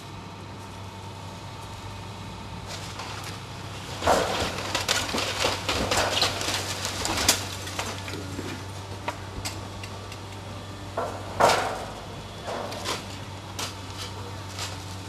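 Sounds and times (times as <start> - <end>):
low engine hum: 0.0 - 15.0
wooden timbers cracking and splintering: 2.6 - 15.0.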